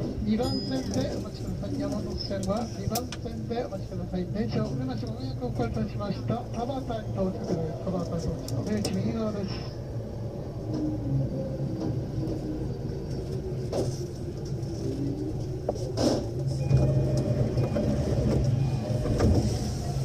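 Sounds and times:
train rumble slowing to stop: 5.1 - 20.0.

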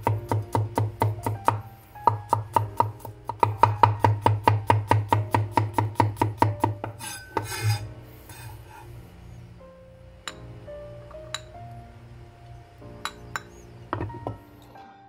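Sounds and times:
knife chopping on wooden board: 0.0 - 7.8
knife blade scraping board: 6.8 - 8.9.

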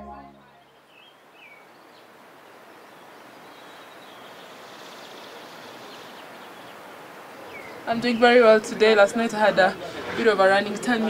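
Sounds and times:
steady outdoor hiss: 0.0 - 11.0.

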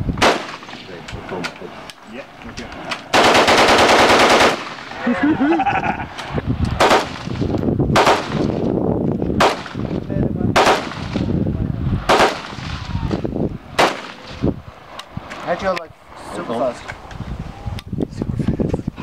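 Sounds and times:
single loud gunshots: 0.2 - 1.0, 3.1 - 5.0, 6.8 - 8.6, 9.4 - 9.8, 10.5 - 11.3, 12.1 - 13.1, 13.8 - 14.4.

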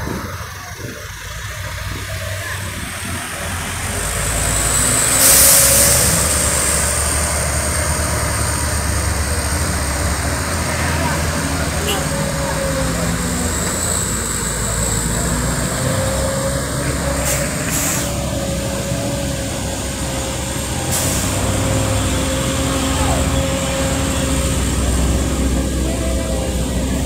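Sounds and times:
heavy truck engine whining: 0.0 - 27.0
passing traffic: 0.0 - 27.0
air-brake hisses: 5.1 - 6.2, 17.2 - 18.2.

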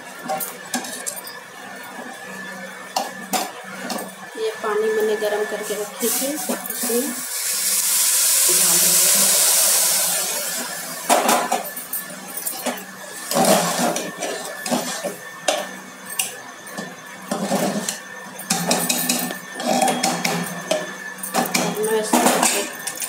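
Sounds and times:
water pouring into pot: 6.0 - 11.2.

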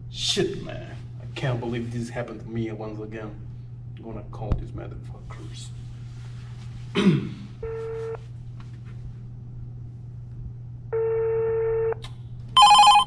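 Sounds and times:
steady low hum: 0.0 - 13.0
telephone ringback beeps: 12.6 - 13.0.

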